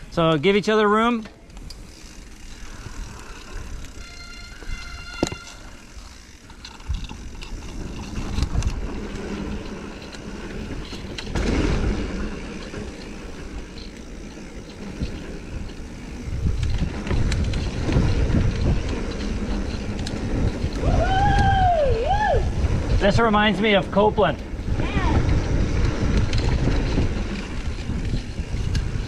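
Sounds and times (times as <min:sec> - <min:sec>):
bike clicks and rattles: 0:00.0 - 0:29.0
bike tyres rumbling over dirt: 0:00.0 - 0:29.0
wind rumble on microphone: 0:06.6 - 0:29.0.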